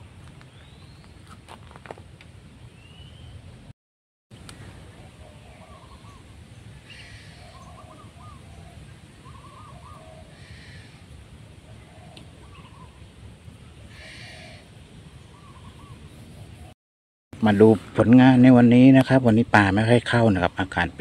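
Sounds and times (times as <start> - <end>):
higher buzzy bird call: 5.3 - 11.2, 13.8 - 16.7
bird calling short phrases: 13.9 - 14.7.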